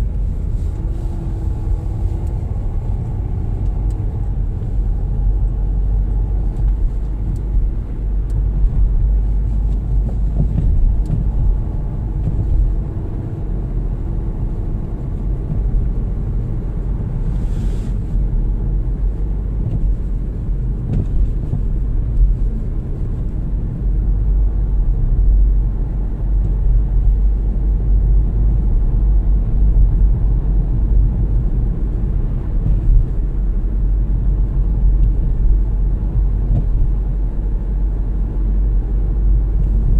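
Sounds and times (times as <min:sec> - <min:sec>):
car interior road and engine noise: 0:00.0 - 0:39.9
brief hiss: 0:17.3 - 0:18.1.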